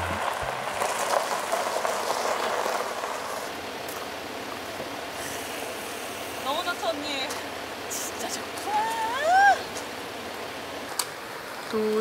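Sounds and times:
tyres crunching over gravel: 0.0s - 5.0s
steady low hiss: 0.0s - 12.0s.

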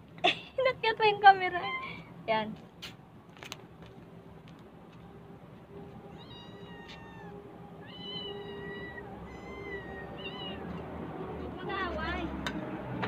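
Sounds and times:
cats meowing: 6.1s - 10.9s.

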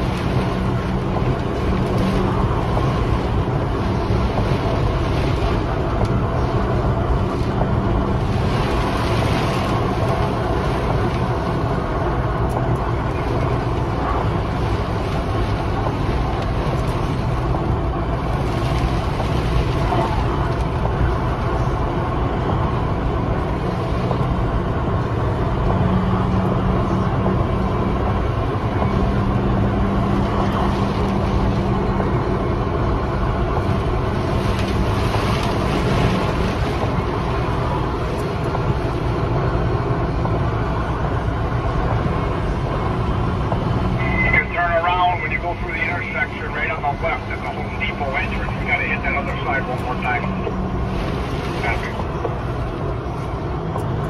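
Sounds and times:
plow truck rumbling: 0.0s - 54.0s
steady drone: 0.0s - 54.0s.

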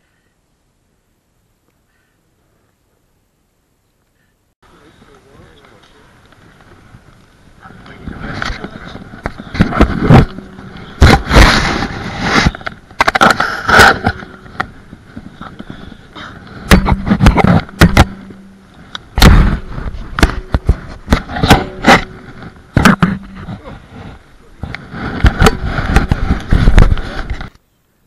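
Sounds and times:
knocks and scuffs on microphone: 19.2s - 27.5s.

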